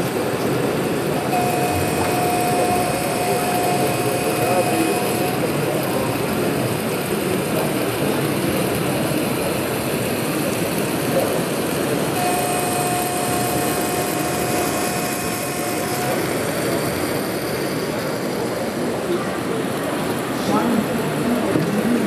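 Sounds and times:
model locomotive rumble: 0.0s - 22.0s.

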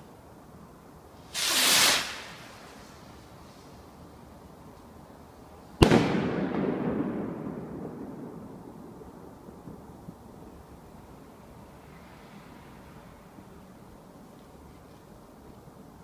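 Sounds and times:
rocket rushing hiss: 1.2s - 3.8s
firework bang echoing: 5.8s - 10.0s.

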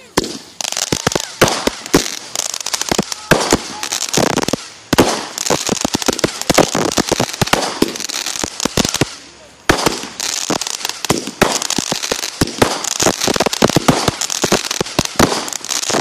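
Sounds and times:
fireworks cracking and popping: 0.0s - 16.0s
fireworks hiss: 0.0s - 16.0s.

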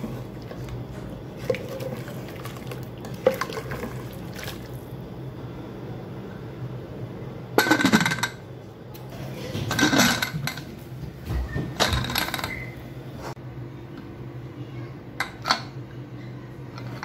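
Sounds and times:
steady low hum: 0.0s - 11.3s.

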